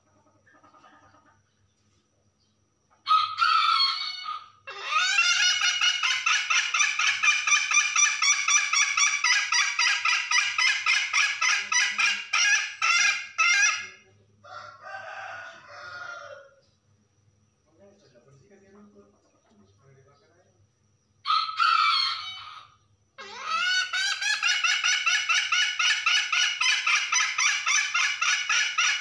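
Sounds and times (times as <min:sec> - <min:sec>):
hen calling with harsh notes: 0:03.1 - 0:14.1, 0:21.2 - 0:29.0.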